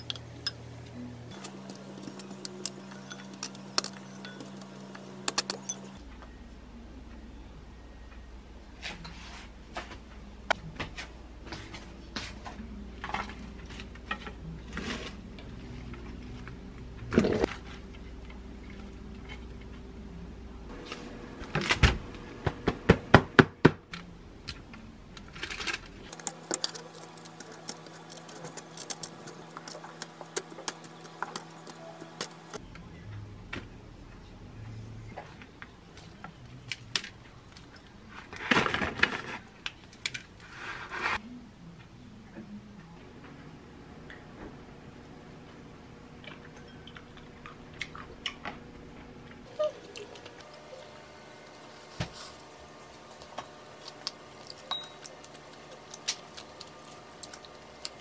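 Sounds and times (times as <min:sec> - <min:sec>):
tongs clicking on metal basket: 0:26.1 - 0:32.6.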